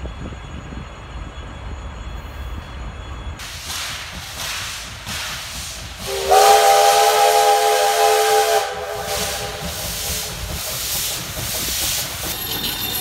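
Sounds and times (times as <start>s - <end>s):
steam exhaust hissing: 3.4s - 13.0s
steam locomotive whistle: 6.0s - 10.4s.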